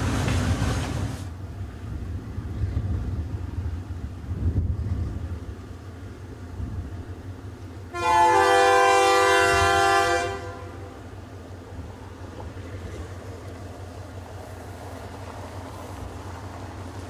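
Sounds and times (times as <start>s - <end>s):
low steady rumble: 0.0s - 17.0s
locomotive air horn blast: 7.9s - 11.1s.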